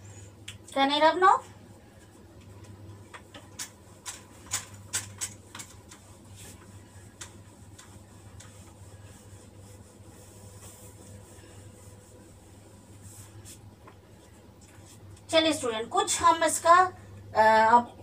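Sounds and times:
faint steady hum: 0:00.0 - 0:18.0
whiteboard wiped with cloth: 0:05.1 - 0:15.4.

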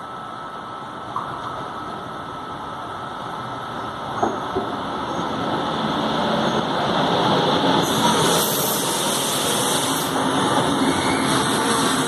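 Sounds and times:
bright hiss: 0:07.8 - 0:12.0.

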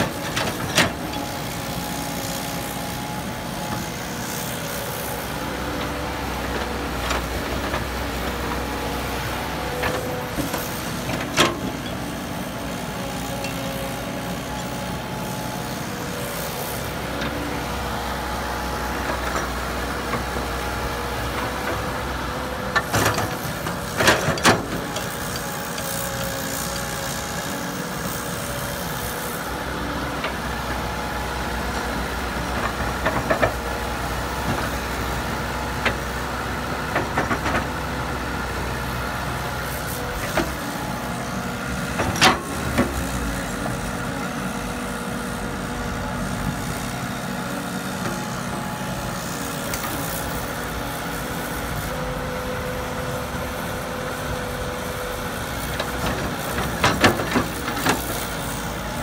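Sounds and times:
excavator diesel engine humming: 0:00.0 - 0:59.0
excavator clanks: 0:21.2 - 0:29.1, 0:32.4 - 0:38.0, 0:55.6 - 0:58.8.

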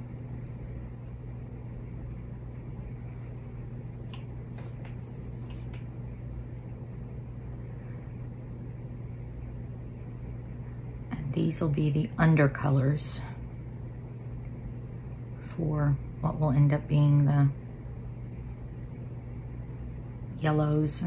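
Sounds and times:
low electrical hum: 0:00.0 - 0:21.0
faint soft scratches: 0:04.5 - 0:06.4.

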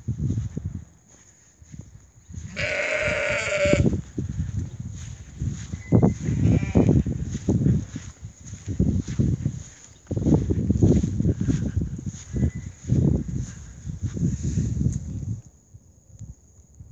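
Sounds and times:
footsteps on grass: 0:00.0 - 0:15.4
sheep bleating: 0:02.5 - 0:03.9, 0:06.2 - 0:07.0.

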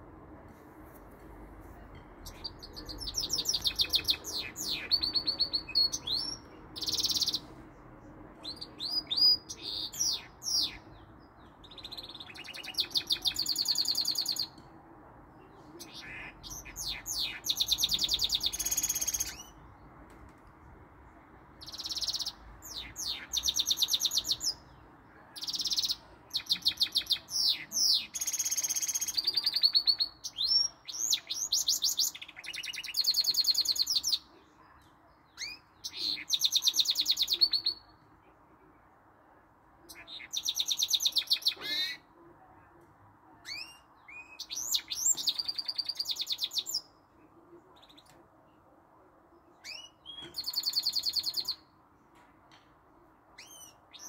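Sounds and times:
finch singing trills and whistles: 0:02.3 - 0:07.5, 0:15.9 - 0:19.6, 0:49.7 - 0:51.6.

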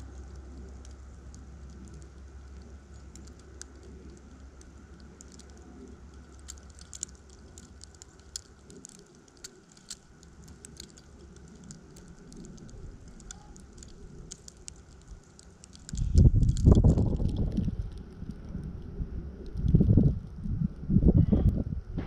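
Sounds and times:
snow ticking on camera: 0:00.0 - 0:21.0
wind gust on microphone: 0:15.9 - 0:22.0.

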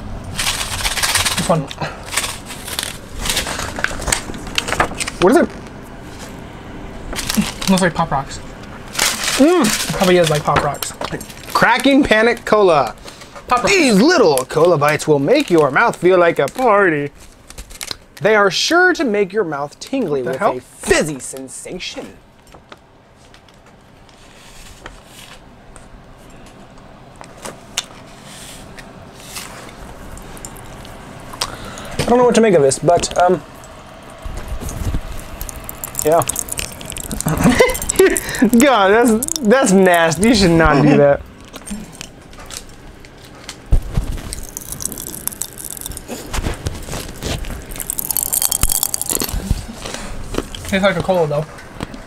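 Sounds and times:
candy wrapper crinkling: 0:00.3 - 0:05.5, 0:08.9 - 0:12.6, 0:29.7 - 0:31.5, 0:35.0 - 0:40.4, 0:41.4 - 0:50.7
chewing and mouth sounds: 0:30.0 - 0:31.6, 0:34.3 - 0:39.6, 0:44.2 - 0:50.7.

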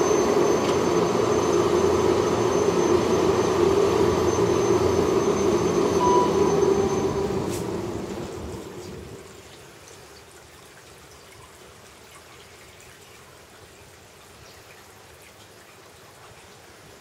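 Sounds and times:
inclined lift mechanical rumble: 0:00.0 - 0:09.4.

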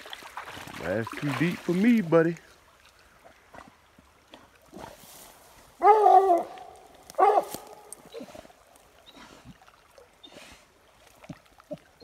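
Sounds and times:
dog baying: 0:05.8 - 0:08.3.

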